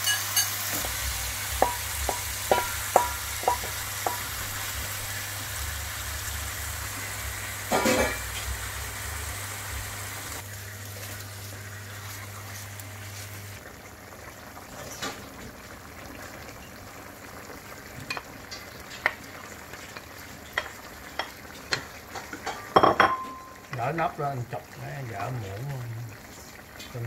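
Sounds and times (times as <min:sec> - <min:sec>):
wooden utensils clicking on pan: 0:00.0 - 0:04.7
food sizzling in a wok: 0:00.0 - 0:27.0.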